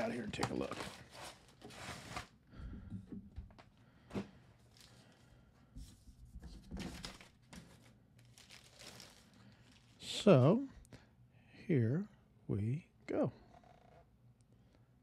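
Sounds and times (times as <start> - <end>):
plastic bubble wrap crinkling: 7.0 - 10.0.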